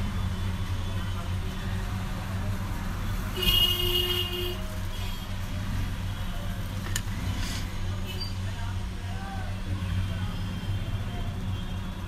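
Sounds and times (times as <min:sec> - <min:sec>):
road traffic hum: 0:00.0 - 0:12.0
vehicle horn: 0:03.4 - 0:05.2.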